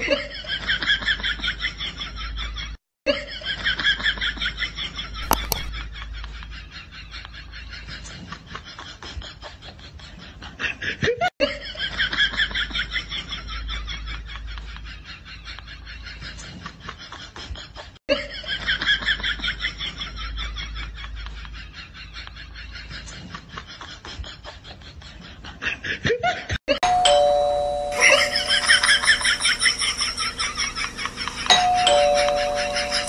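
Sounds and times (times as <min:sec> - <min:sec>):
high-pitched laughter: 0:27.9 - 0:33.0.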